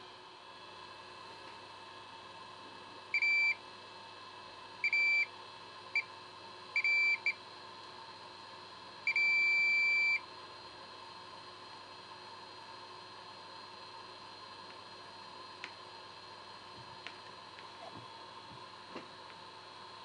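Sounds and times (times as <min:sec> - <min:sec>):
multimeter beeping: 0:03.2 - 0:03.6, 0:04.8 - 0:05.2, 0:09.1 - 0:10.2.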